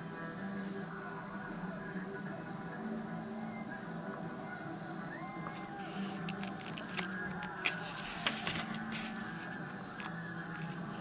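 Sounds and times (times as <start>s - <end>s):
page turning rustle: 5.5s - 11.0s
paper ticks: 6.2s - 9.2s.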